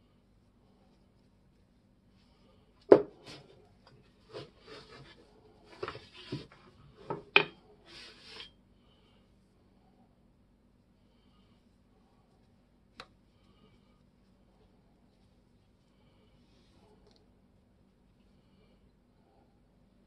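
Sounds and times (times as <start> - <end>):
paintbrush strokes on wood: 0.0 - 6.7, 11.7 - 17.1.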